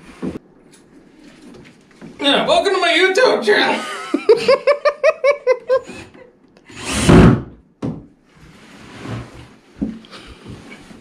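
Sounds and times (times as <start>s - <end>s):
person laughing: 3.8s - 6.3s.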